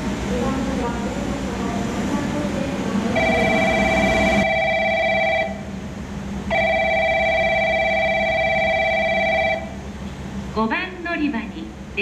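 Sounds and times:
electronic warning bell ringing: 0:03.2 - 0:05.7, 0:06.5 - 0:09.8.

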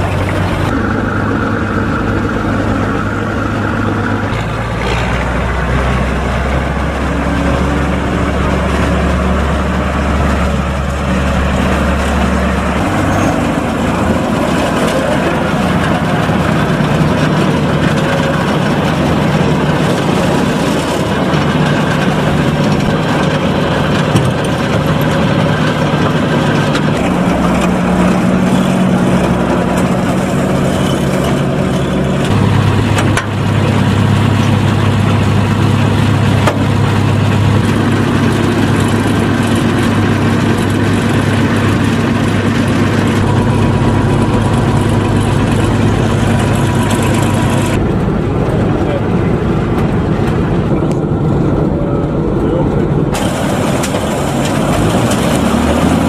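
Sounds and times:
combine harvester diesel engine: 0:00.0 - 0:56.0.

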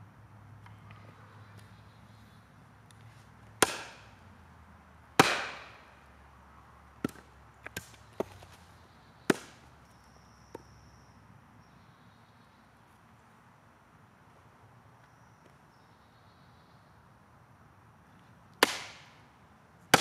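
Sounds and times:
light knocks of wood and blade: 0:02.9 - 0:04.1, 0:07.0 - 0:08.7
machete chopping into a log: 0:03.6 - 0:04.1, 0:05.2 - 0:05.8, 0:09.3 - 0:09.6, 0:18.6 - 0:19.1.

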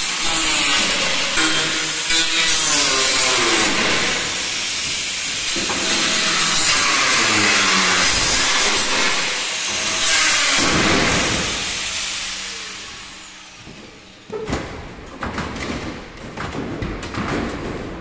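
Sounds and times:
angle grinder cutting steel: 0:00.0 - 0:14.2.

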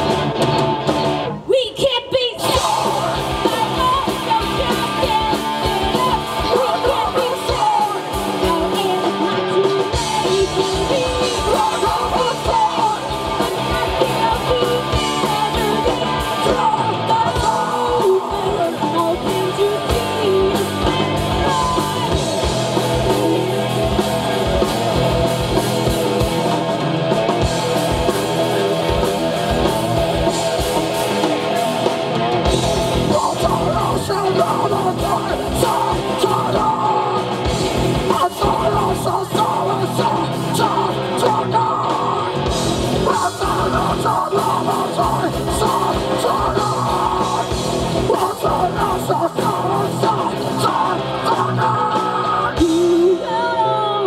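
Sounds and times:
live rock band playing: 0:00.0 - 0:54.0
woman singing: 0:01.5 - 0:22.2, 0:43.1 - 0:54.0.

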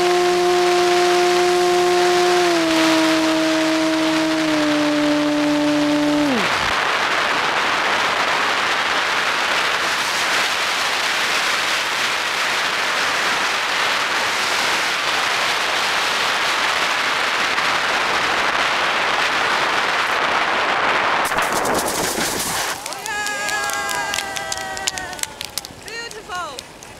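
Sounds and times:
model plane motor humming: 0:00.0 - 0:06.6
plane skidding on sand: 0:00.0 - 0:08.6, 0:20.9 - 0:25.5
wind on microphone: 0:00.0 - 0:26.9.

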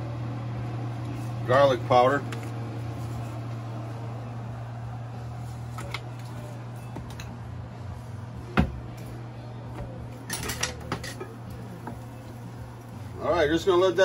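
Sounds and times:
low hum: 0:00.0 - 0:13.2.

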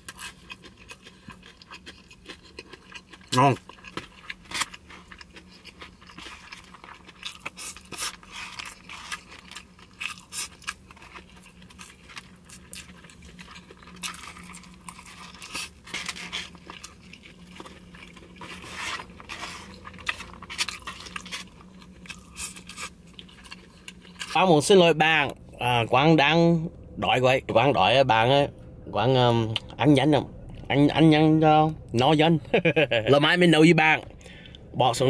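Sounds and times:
chewing: 0:00.0 - 0:24.4.

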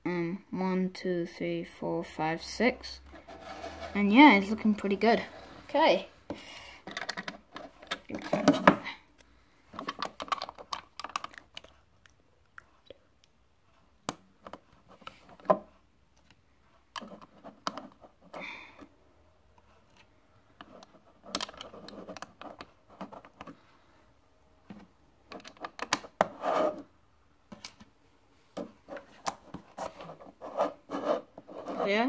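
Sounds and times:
plastic bricks clicking: 0:06.9 - 0:08.4, 0:09.8 - 0:11.7.

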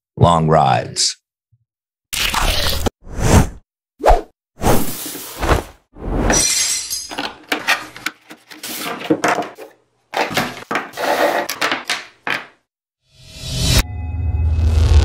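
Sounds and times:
parts knocking on wooden table: 0:09.0 - 0:12.6.

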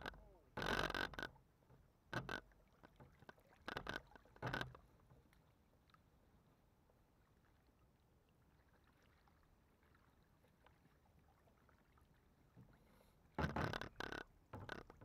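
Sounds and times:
faint ticks: 0:00.0 - 0:06.0, 0:12.6 - 0:15.0.

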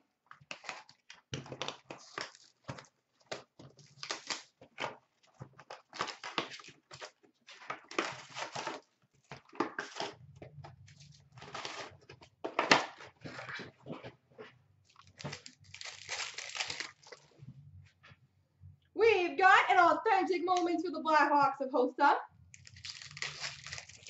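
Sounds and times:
cardboard and foil crinkling: 0:00.4 - 0:10.2, 0:10.9 - 0:14.0, 0:14.9 - 0:17.4, 0:22.6 - 0:24.0.

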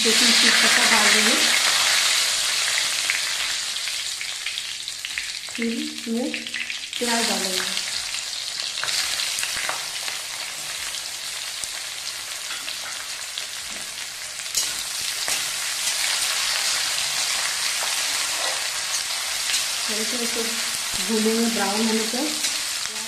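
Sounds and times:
onions sizzling in oil: 0:00.0 - 0:23.0
metal spatula scraping a pan: 0:14.5 - 0:19.8.

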